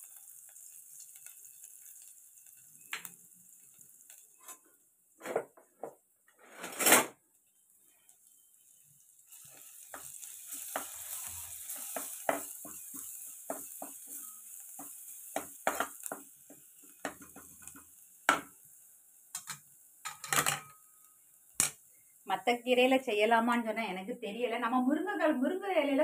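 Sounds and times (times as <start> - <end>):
garlic sizzling in oil: 0.0 - 5.5, 7.4 - 26.0
spatula scraping and knocking pot: 9.9 - 18.5.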